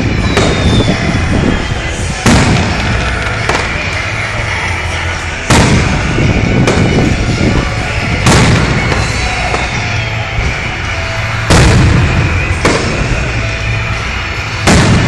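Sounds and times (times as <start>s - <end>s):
firework shells booming: 0.0s - 1.1s, 2.2s - 4.2s, 5.4s - 7.2s, 8.2s - 10.0s, 11.3s - 13.4s, 14.6s - 15.0s
continuous background din: 0.0s - 15.0s
smaller firework pops: 0.2s - 0.8s, 2.3s - 4.0s.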